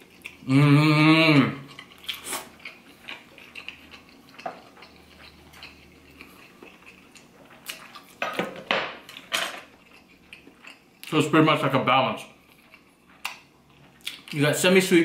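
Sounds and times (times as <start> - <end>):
quiet chewing: 0.0 - 0.5, 1.6 - 8.2, 9.0 - 11.2, 12.3 - 14.4.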